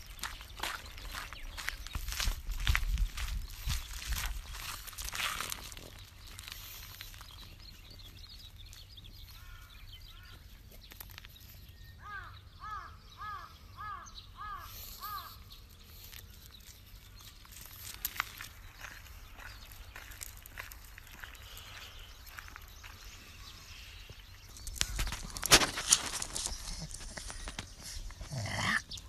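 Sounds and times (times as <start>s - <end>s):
footsteps crunching on gravel: 0.0s - 11.7s, 15.1s - 28.7s
crow cawing: 12.0s - 15.3s.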